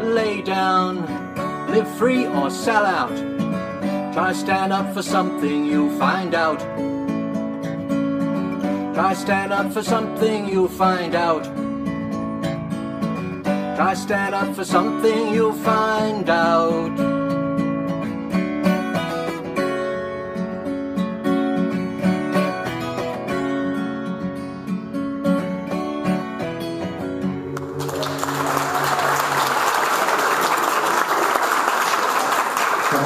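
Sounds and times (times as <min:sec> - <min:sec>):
acoustic guitar playing: 0:00.0 - 0:30.4
audience applause: 0:27.4 - 0:33.0.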